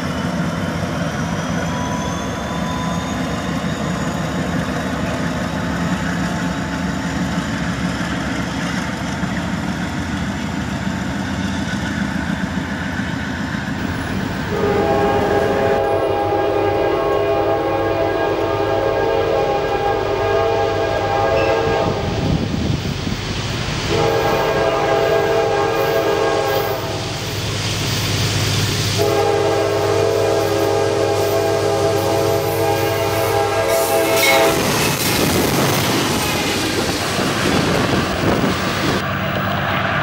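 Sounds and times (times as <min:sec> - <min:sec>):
locomotive engine drone: 0:00.0 - 0:40.0
train wheels on rails: 0:00.0 - 0:40.0
locomotive air horn blasts: 0:14.5 - 0:22.3, 0:23.9 - 0:27.0, 0:29.0 - 0:34.8.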